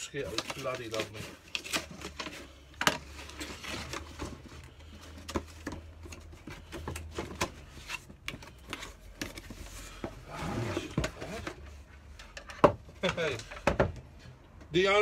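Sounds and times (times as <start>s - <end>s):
cardboard rustling and scraping: 0.0s - 12.2s.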